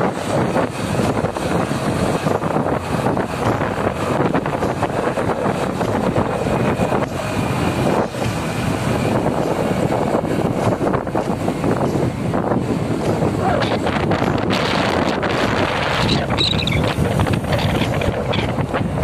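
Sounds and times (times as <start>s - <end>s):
road noise: 0.0s - 19.0s
wind rushing over microphone: 0.0s - 19.0s.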